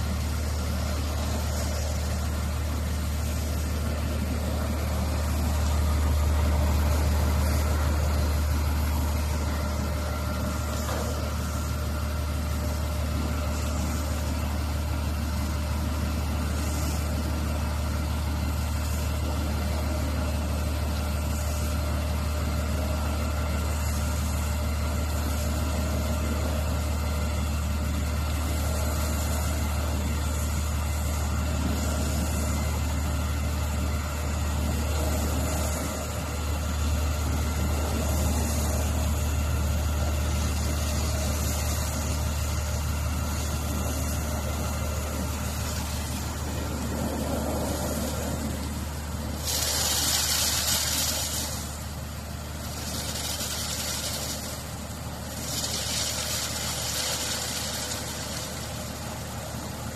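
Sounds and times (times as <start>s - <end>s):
bus-washing machine humming: 0.0s - 59.9s.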